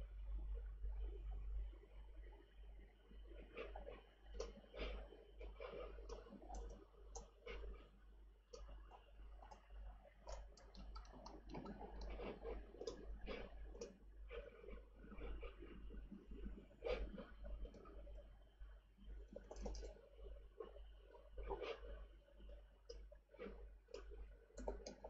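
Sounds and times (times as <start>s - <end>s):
mouse clicking: 6.1s - 7.3s, 10.3s - 12.1s, 19.4s - 19.9s, 23.9s - 25.0s
computer keyboard typing: 19.4s - 19.9s.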